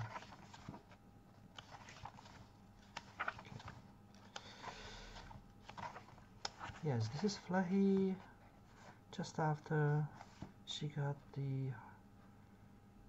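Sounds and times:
book pages turning: 0.0 - 9.0.

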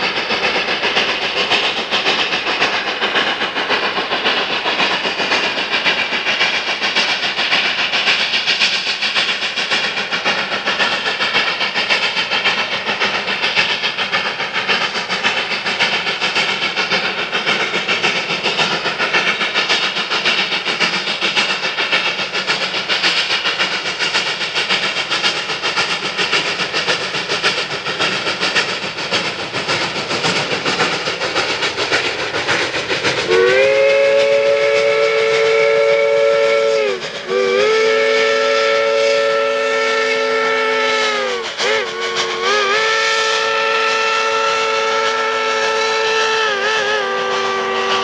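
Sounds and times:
steam locomotive exhaust chuffing: 0.0 - 48.0
steam whistle blasts: 33.2 - 48.0.

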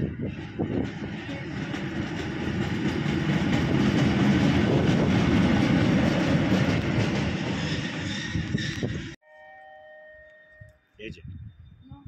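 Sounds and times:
diesel locomotive rumble: 0.0 - 9.2.

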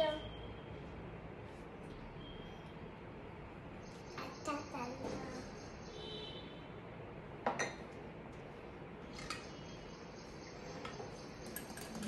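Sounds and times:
glass bowls clinking: 7.5 - 7.9, 11.4 - 12.0.

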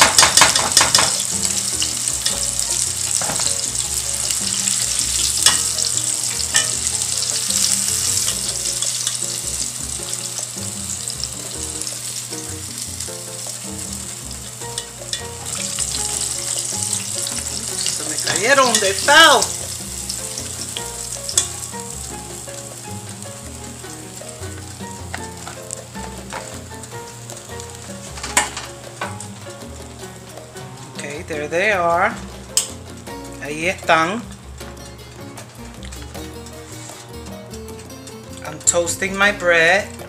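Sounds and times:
oil popping: 0.0 - 22.6
shrimp deep-frying in oil: 0.0 - 30.3.

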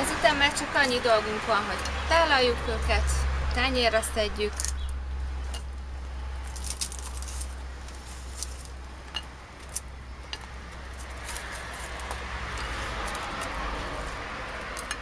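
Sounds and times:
steady low hum: 1.6 - 14.4
handling rustle: 6.4 - 14.9.

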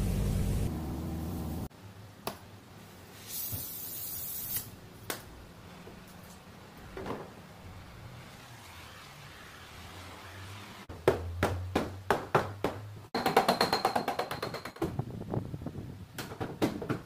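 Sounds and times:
gas torch hissing: 3.2 - 4.8.

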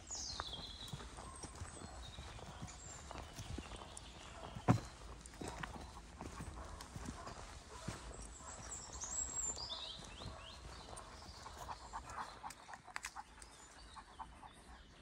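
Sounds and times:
footsteps on sandy path: 0.0 - 12.4
bird chirping: 0.0 - 15.0
dog panting: 0.9 - 15.0.

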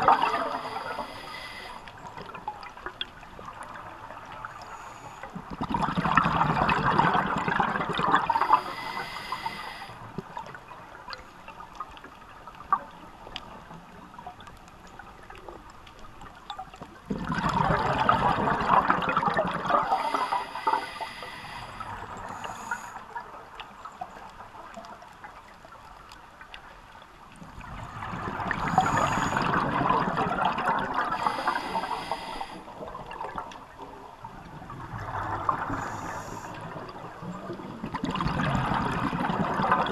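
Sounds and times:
exhaled bubbles underwater: 0.0 - 25.2, 27.3 - 39.9
regulator hiss: 0.1 - 1.9, 8.3 - 10.0, 19.9 - 23.1, 28.6 - 29.5, 31.2 - 32.7, 35.7 - 36.6.

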